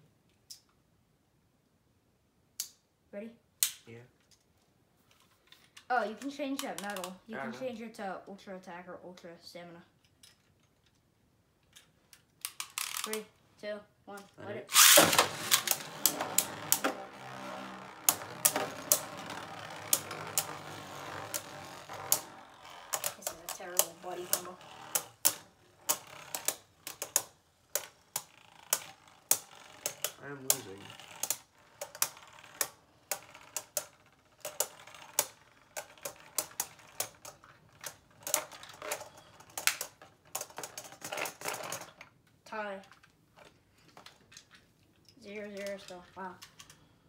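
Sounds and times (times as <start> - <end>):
spinning tops clashing: 14.7 - 26.5
spinning tops clacking: 14.7 - 39.6
spinning tops whirring: 14.7 - 42.0.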